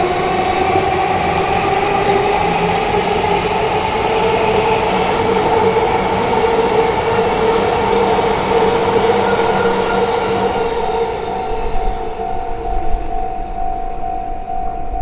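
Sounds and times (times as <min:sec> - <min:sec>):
electric train passing: 0:00.0 - 0:15.0
level crossing warning bell: 0:11.0 - 0:15.0.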